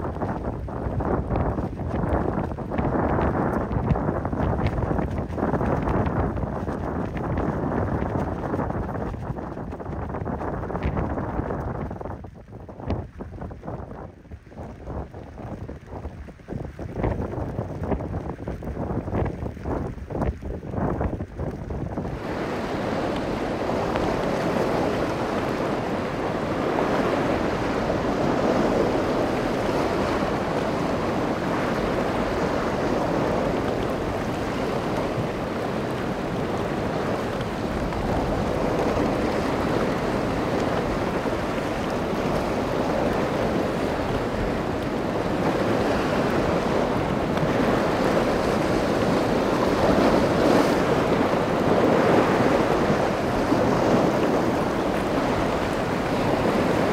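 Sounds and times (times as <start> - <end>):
wind buffeting microphone: 0.0 - 56.9
waves breaking: 21.4 - 56.9.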